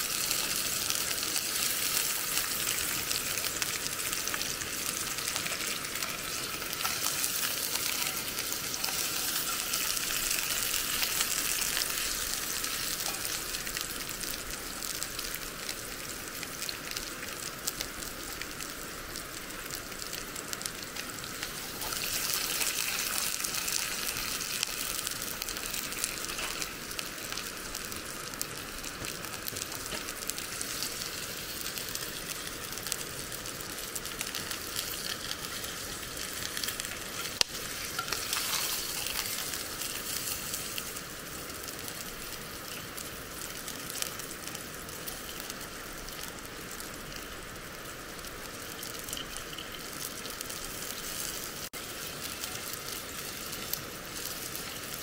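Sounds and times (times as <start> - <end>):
food sizzling in cookware: 0.0 - 55.0.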